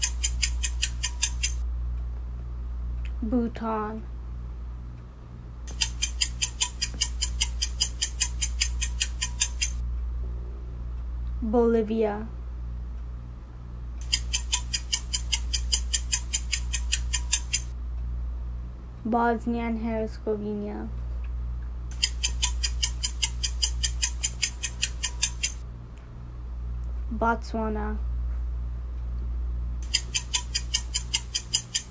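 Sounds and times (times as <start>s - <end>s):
fast clock ticks: 0.0s - 1.6s, 5.7s - 9.8s, 14.0s - 17.7s, 21.9s - 25.6s, 29.8s - 31.9s.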